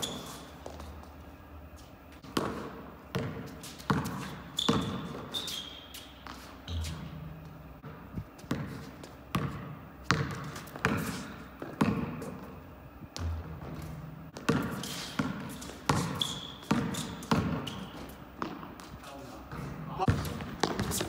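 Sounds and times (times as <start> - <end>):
sneakers squeaking on court: 0.0 - 21.0
basketball dribbling on court: 2.2 - 5.4, 6.2 - 12.4, 13.2 - 18.9, 19.5 - 21.0.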